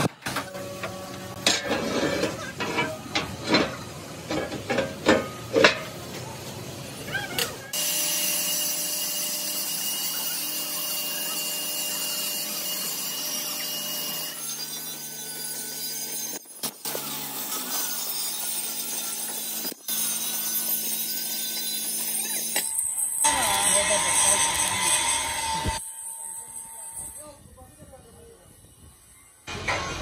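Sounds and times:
metal clanks and knocks: 0:01.4 - 0:06.0.

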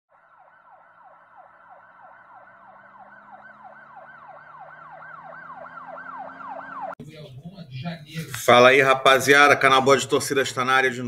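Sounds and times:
siren yelping: 0:00.1 - 0:07.0.

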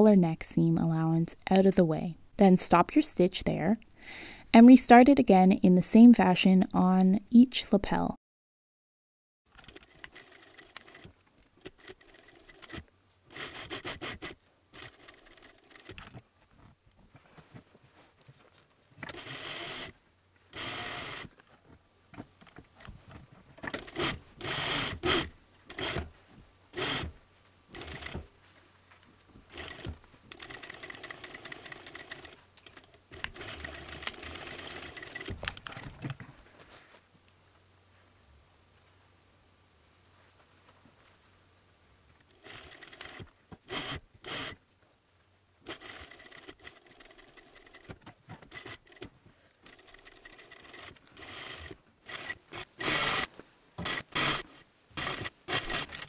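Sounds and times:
sewing machine stitching: 0:09.6 - 0:16.0, 0:19.0 - 0:21.3, 0:23.6 - 0:26.1, 0:26.8 - 0:28.3, 0:29.5 - 0:35.9, 0:42.3 - 0:44.6, 0:45.7 - 0:56.0.

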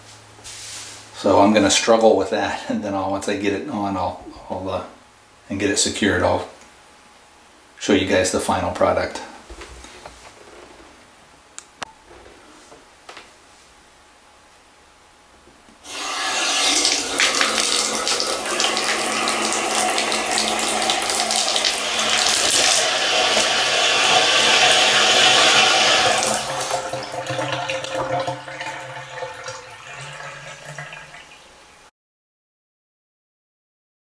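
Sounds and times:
water running into bathtub: 0:15.8 - 0:31.6
water dripping: 0:16.7 - 0:31.6.

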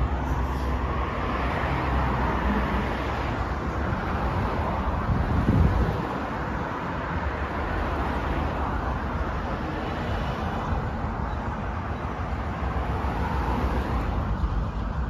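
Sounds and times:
road traffic rumble: 0:00.0 - 0:15.0
wind buffeting microphone: 0:04.3 - 0:06.4.

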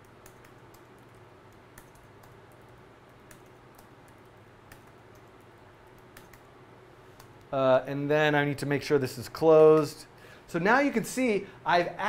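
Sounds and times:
computer keyboard keystrokes: 0:00.0 - 0:06.5
steady low hum: 0:00.0 - 0:12.0.

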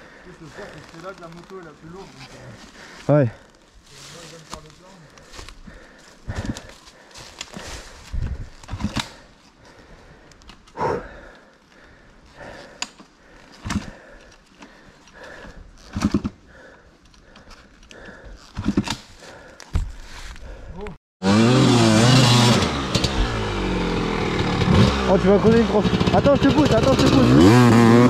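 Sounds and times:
heavy breathing: 0:00.0 - 0:01.2, 0:01.9 - 0:21.0.

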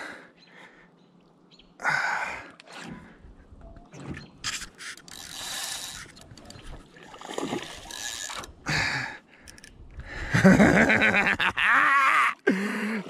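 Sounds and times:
fishing reel gears whirring: 0:04.6 - 0:06.5, 0:07.6 - 0:08.5.

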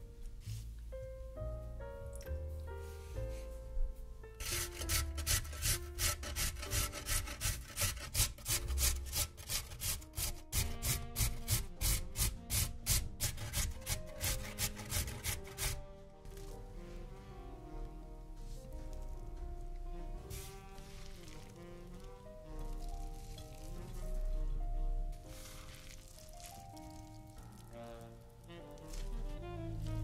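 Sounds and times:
soft background music: 0:00.0 - 0:30.0
scraping vegetables by hand: 0:04.4 - 0:15.8.

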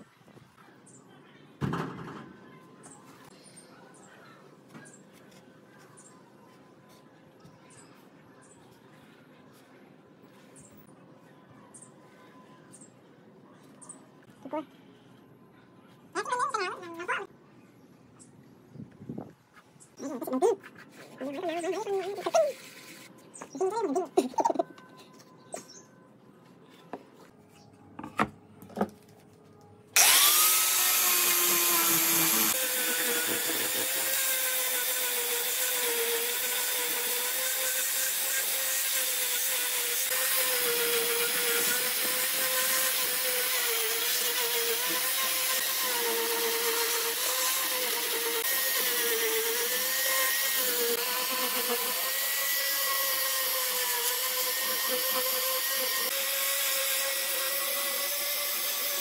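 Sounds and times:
angle grinder sanding wood: 0:30.0 - 0:59.0.

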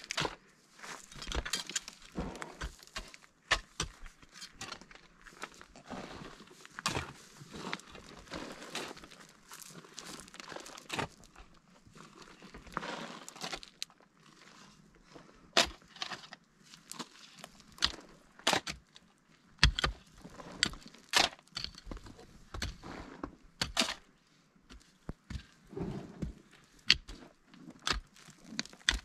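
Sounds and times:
pick and shovel digging stony ground: 0:00.0 - 0:29.0.

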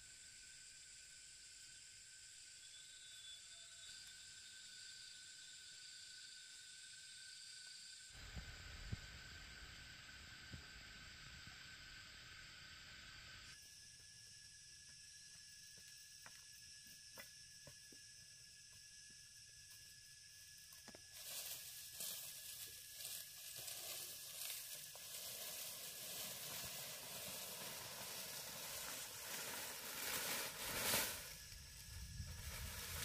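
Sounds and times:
dry palm fronds rustling: 0:21.2 - 0:33.0.

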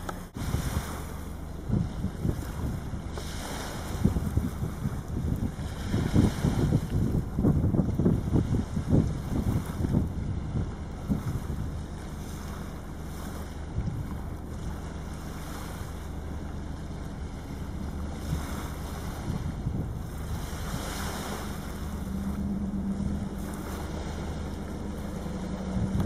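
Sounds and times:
low steady hum: 0:00.0 - 0:26.0
small waves washing on beach: 0:00.0 - 0:26.0
wind rumbling on microphone: 0:00.0 - 0:26.0.

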